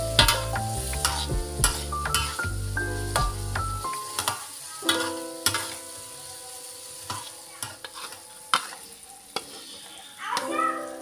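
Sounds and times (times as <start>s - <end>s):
food frying and sizzling: 0.0s - 11.0s
spatula clinking on pan: 0.2s - 2.4s, 4.0s - 6.0s, 7.0s - 9.7s
spatula scraping a wok: 0.2s - 3.2s, 4.0s - 10.1s.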